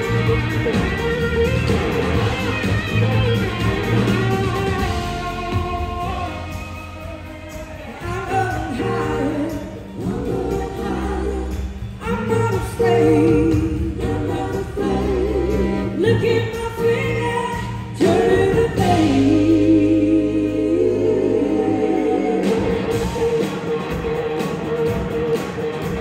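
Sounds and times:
live blues-rock band: 0.0s - 26.0s
woman singing: 7.5s - 22.8s.

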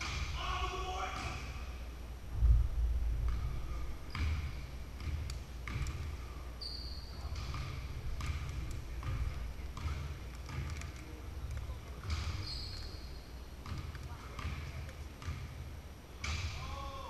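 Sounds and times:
basketballs bouncing on gym floor: 0.0s - 0.5s, 2.3s - 6.3s, 6.9s - 16.9s
short high squeak: 12.4s - 13.2s.

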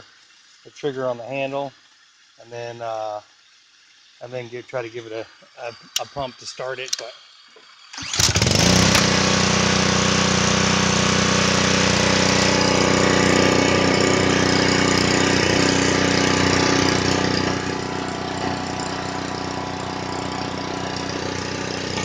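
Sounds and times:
pressure washer engine running: 8.0s - 22.0s.

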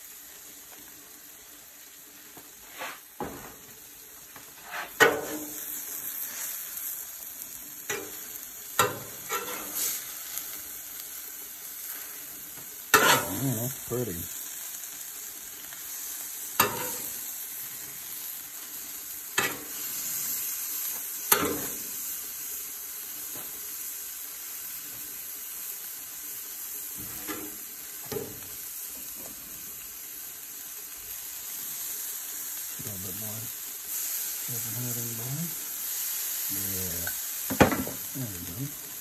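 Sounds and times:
tacos sizzling on a griddle: 0.0s - 39.0s
metal spatula scraping a griddle: 2.6s - 3.5s, 4.5s - 6.6s, 7.8s - 10.5s, 12.9s - 13.4s, 16.6s - 17.2s, 19.3s - 20.4s, 27.0s - 28.4s.

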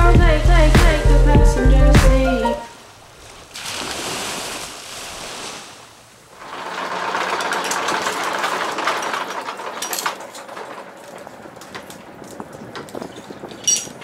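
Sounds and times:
anchor windlass motor whir: 6.3s - 14.0s
anchor chain clinking: 6.4s - 14.0s.

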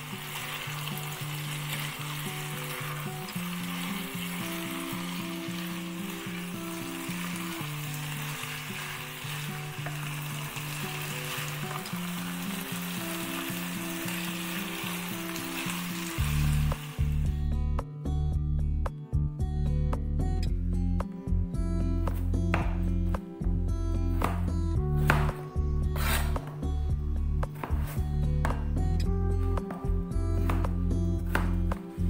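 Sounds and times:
food sizzling in a pan: 0.0s - 17.3s
background music: 0.0s - 32.0s.

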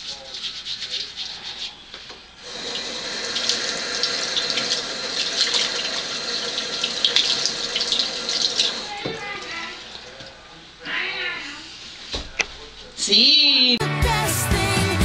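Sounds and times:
soapy hands rubbing together: 0.0s - 9.0s
faucet water running into sink: 2.4s - 10.2s.

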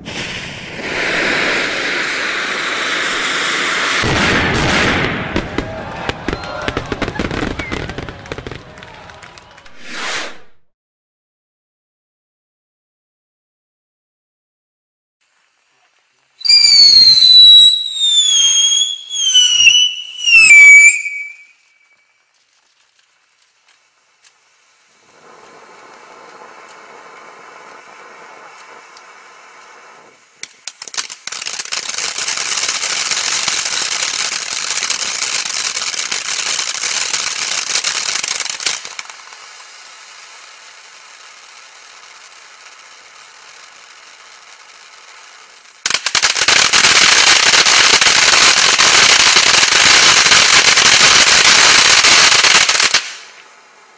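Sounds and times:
falling firework whistle: 0.0s - 9.0s, 9.6s - 10.7s, 16.4s - 22.3s, 34.0s - 53.5s
dense rapid firework pops: 0.0s - 10.6s, 16.4s - 53.6s
firework fountain hissing: 0.0s - 10.6s, 15.2s - 53.9s.

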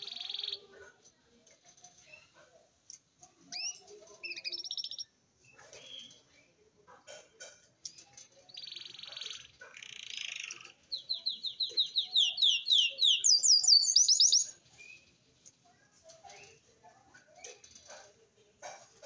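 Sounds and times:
finch singing: 8.5s - 15.1s.

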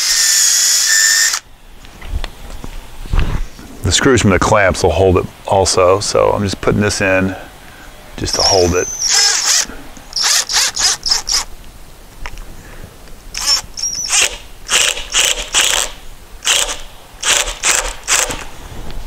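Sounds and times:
cordless drill driving a screw: 0.0s - 1.4s, 8.9s - 11.5s, 13.4s - 18.5s.

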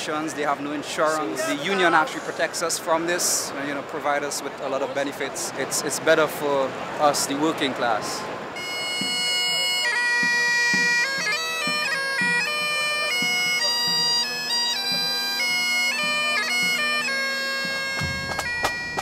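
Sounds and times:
bagpipes playing a tune: 8.5s - 19.0s.

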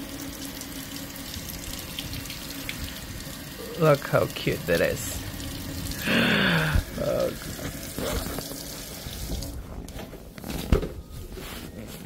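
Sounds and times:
faucet water splashing on fabric: 0.0s - 9.6s.

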